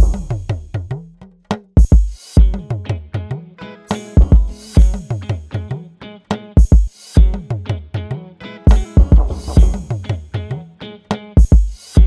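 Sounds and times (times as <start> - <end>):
heavy kick drum: 0.0 - 1.0, 1.8 - 2.7, 4.2 - 5.2, 6.6 - 7.5, 8.7 - 10.2, 11.4 - 12.0
background music with drum beat: 0.0 - 12.0.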